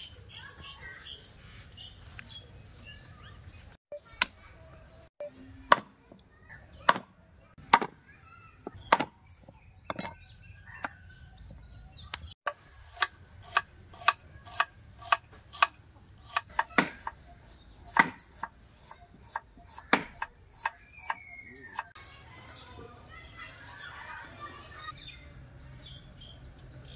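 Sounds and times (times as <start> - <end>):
cleaver chopping on wooden board: 17.9 - 18.5, 19.3 - 20.7.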